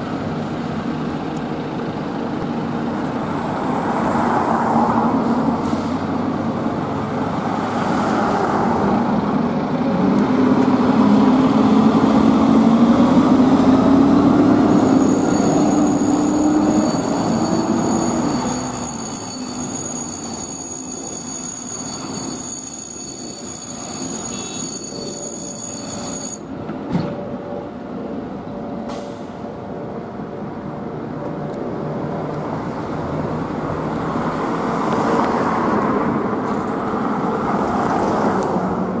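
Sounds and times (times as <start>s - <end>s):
road noise: 0.0s - 39.0s
thin high whine: 14.7s - 26.5s.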